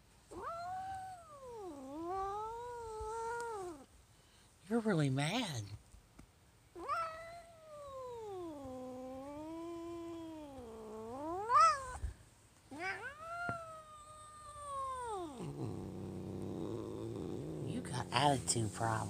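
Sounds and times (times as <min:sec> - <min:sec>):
cat yowling: 0:00.3 - 0:03.8, 0:06.8 - 0:12.0, 0:12.7 - 0:17.7.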